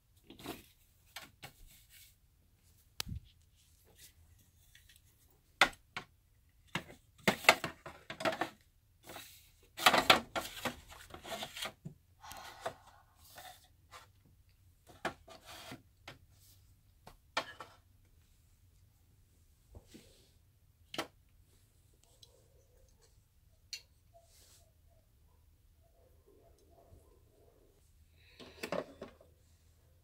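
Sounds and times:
rustling and scraping: 6.8s - 11.8s, 14.8s - 16.8s.

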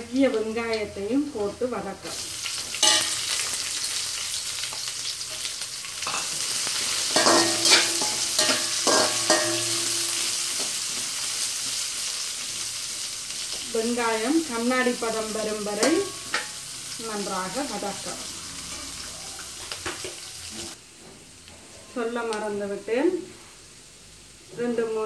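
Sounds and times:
onions sizzling in oil: 0.0s - 25.0s
metal utensil scraping pan: 2.7s - 3.5s, 5.3s - 11.1s, 15.4s - 16.7s.

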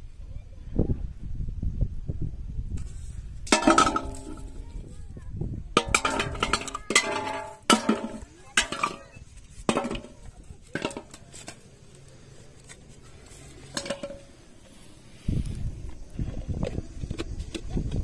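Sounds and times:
plastic bottles clattering into metal basin: 3.5s - 4.6s, 5.8s - 11.6s, 13.7s - 14.3s.

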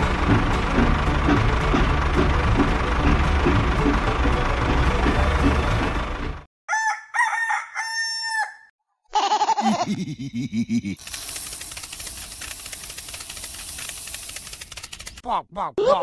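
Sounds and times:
engine noise: 0.0s - 6.5s, 11.0s - 15.2s
rooster crowing: 6.7s - 8.7s.

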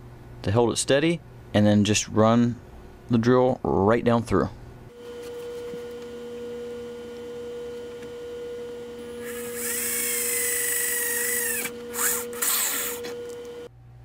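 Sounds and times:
electric drill boring: 9.1s - 13.6s.

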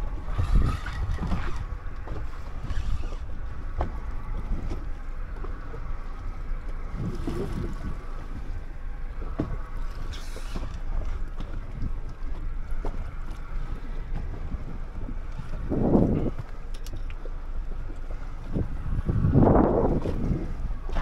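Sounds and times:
boat motor running: 0.0s - 21.0s
wind rumble on microphone: 0.0s - 21.0s.

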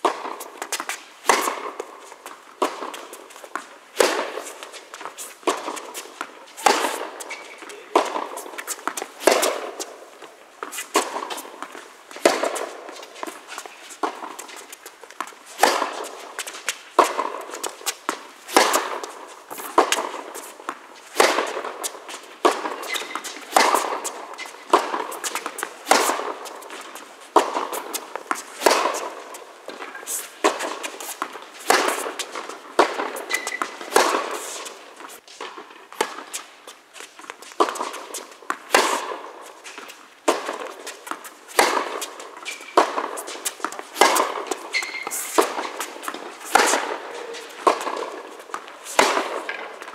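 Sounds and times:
ball bouncing on hard court: 0.0s - 36.5s, 37.2s - 49.9s
racket strings hitting tennis ball: 0.0s - 36.5s, 37.2s - 49.9s.

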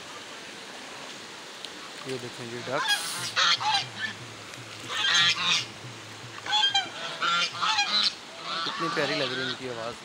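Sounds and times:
ducks honking: 2.6s - 9.7s.

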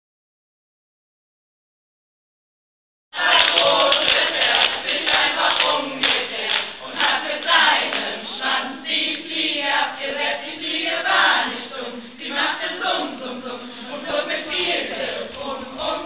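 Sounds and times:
group singing together: 3.2s - 16.0s.

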